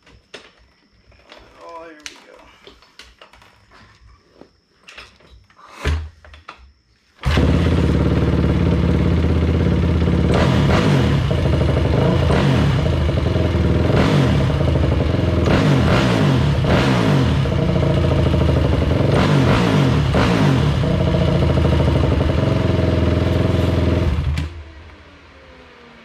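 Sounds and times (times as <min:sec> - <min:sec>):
engine kick-start: 0:07.2 - 0:12.4
engine revving: 0:07.2 - 0:26.0.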